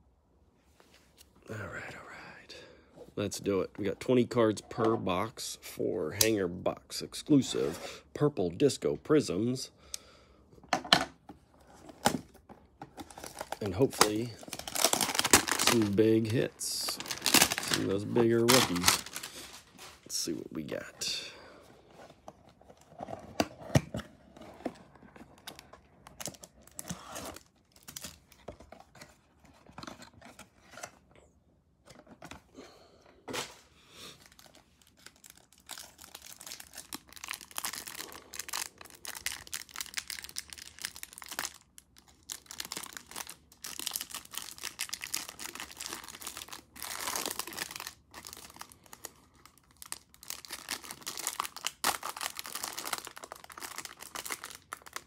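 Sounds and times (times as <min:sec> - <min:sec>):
plastic wrap crinkling and tearing: 0:13.0 - 0:20.2, 0:34.2 - 0:55.0.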